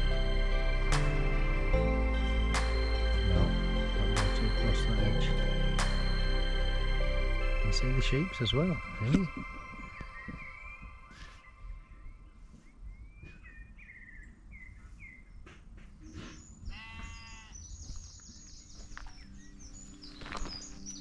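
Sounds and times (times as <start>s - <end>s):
birds chirping: 0.0s - 21.0s
sheep bleating: 16.7s - 17.6s.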